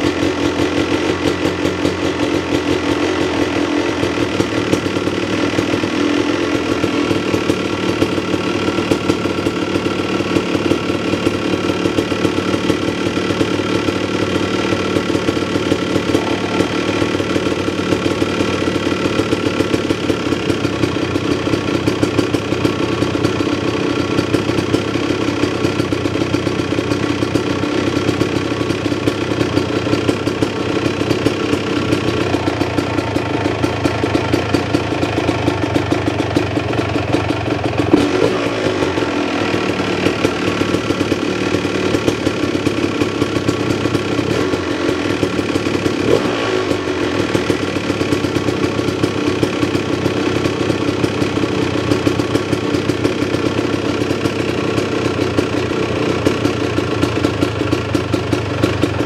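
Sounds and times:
dirt bike engine idling: 0.0 - 59.0
engine throttle blips: 15.0 - 20.7.

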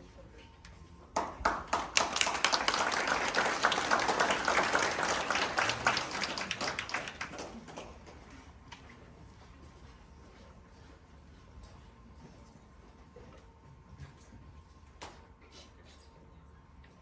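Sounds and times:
audience applauding: 1.2 - 8.4.

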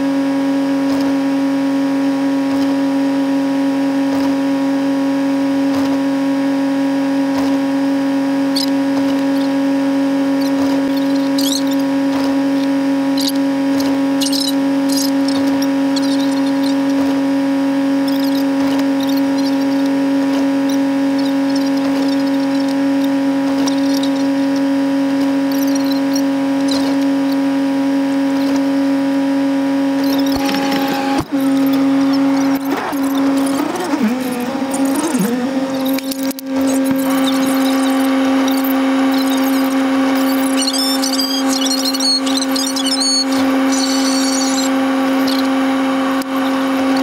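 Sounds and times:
idling vehicle hum: 6.8 - 47.0
faint high squeaks and ticks: 8.5 - 9.5, 10.4 - 11.9, 13.2 - 17.0, 18.0 - 19.9, 20.6 - 24.6, 25.5 - 27.4, 30.0 - 45.5.

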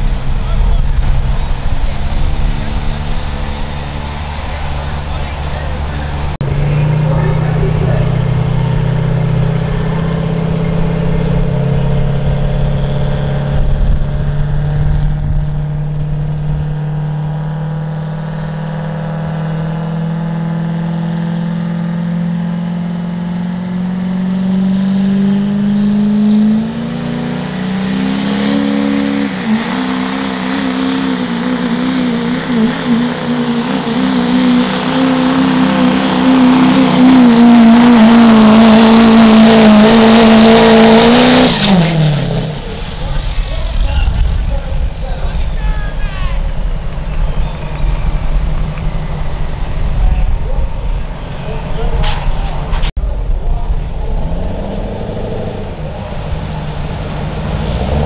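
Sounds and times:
diesel truck engine revving: 0.0 - 58.0
rising whistle: 26.8 - 39.8, 40.7 - 51.1.

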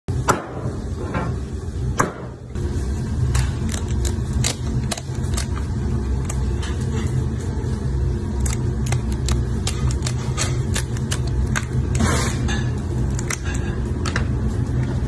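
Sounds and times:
scissors snipping crab shell: 3.2 - 6.6, 8.4 - 12.0.

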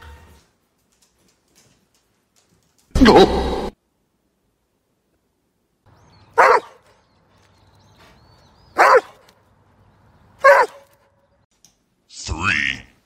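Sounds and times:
dog barking: 6.3 - 6.9, 8.8 - 9.3, 10.4 - 11.1.

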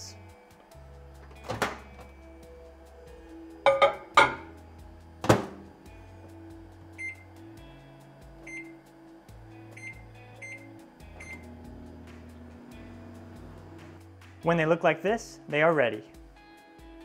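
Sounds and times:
background music: 0.0 - 17.0
microwave door shutting: 1.2 - 2.1, 5.2 - 5.7.

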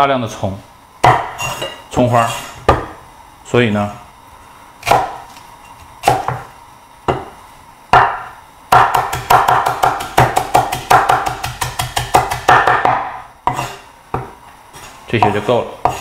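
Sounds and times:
cleaver chopping on wooden board: 1.0 - 1.5, 4.8 - 5.2, 6.0 - 6.5, 7.1 - 14.4, 15.2 - 16.0.

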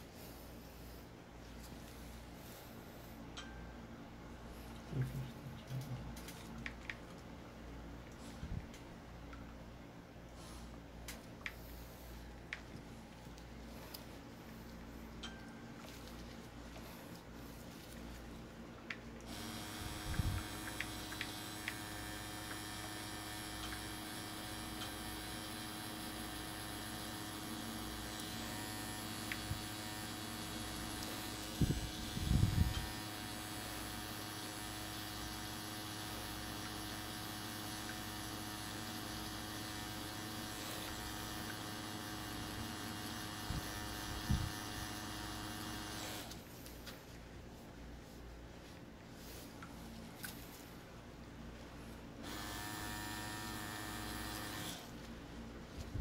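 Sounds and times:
tattoo machine humming: 19.3 - 46.4, 52.2 - 54.9.

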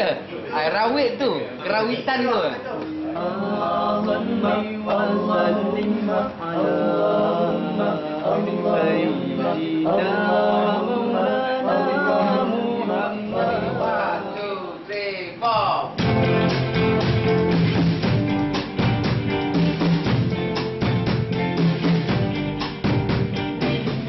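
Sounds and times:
man singing unaccompanied: 2.9 - 14.9.

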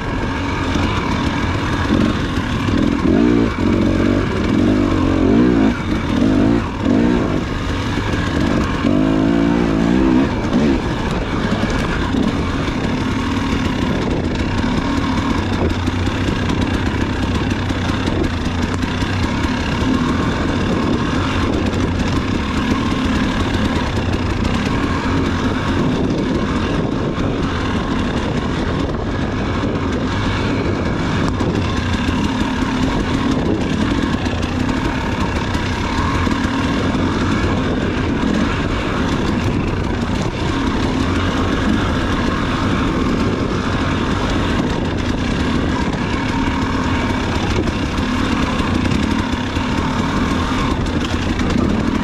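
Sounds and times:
dirt bike engine running: 0.0 - 52.0.

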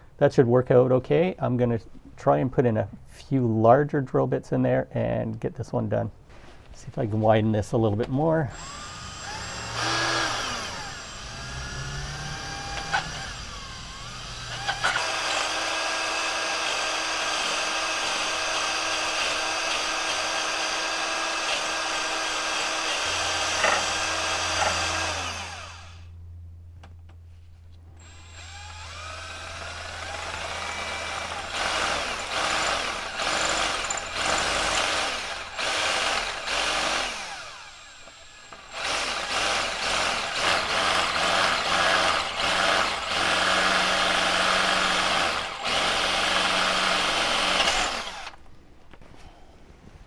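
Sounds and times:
cordless drill boring metal: 8.5 - 26.1, 28.0 - 48.4.

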